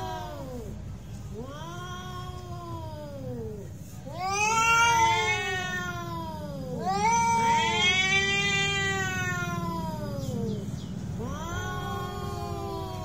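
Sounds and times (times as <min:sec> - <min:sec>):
cats yowling: 0:00.0 - 0:13.0.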